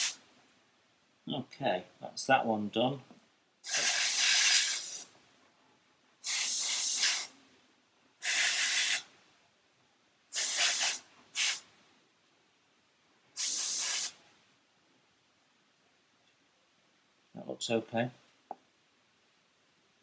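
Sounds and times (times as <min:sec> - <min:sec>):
airbrush hissing in bursts: 0:00.0 - 0:00.2, 0:03.6 - 0:05.1, 0:06.2 - 0:07.4, 0:08.2 - 0:09.1, 0:10.3 - 0:11.7, 0:13.3 - 0:14.2.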